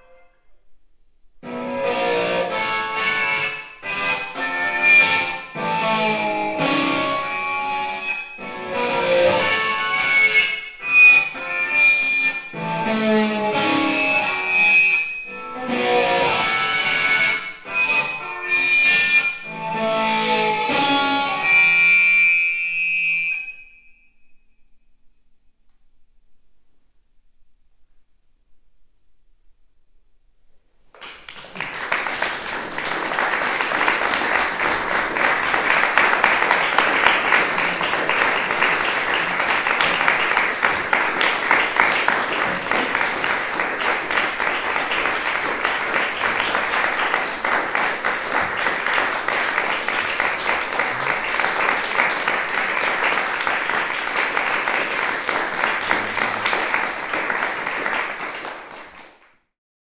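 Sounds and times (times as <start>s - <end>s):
audience applauding: 30.9s - 59.4s.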